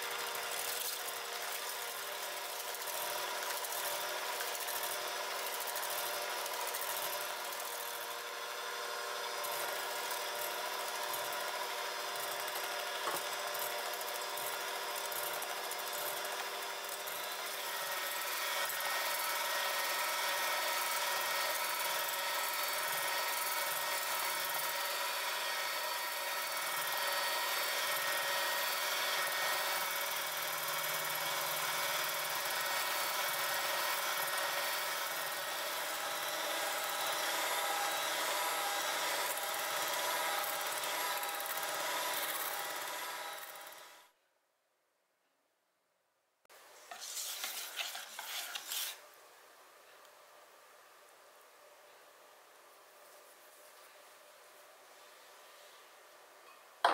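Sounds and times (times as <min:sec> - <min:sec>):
electric mixer whisking: 0:00.0 - 0:44.0.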